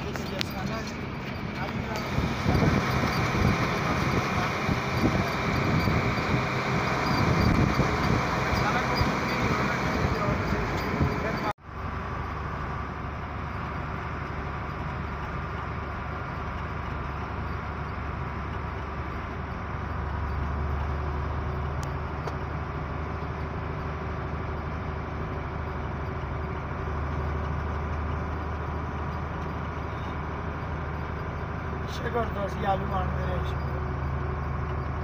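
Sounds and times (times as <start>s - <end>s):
diesel truck engine running: 0.0s - 35.0s
road noise: 0.0s - 35.0s.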